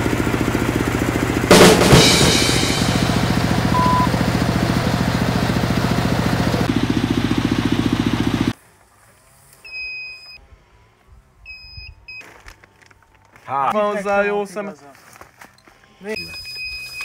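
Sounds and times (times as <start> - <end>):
drilling rig engine pulsing: 0.0 - 8.5
high electronic beep: 3.7 - 4.2.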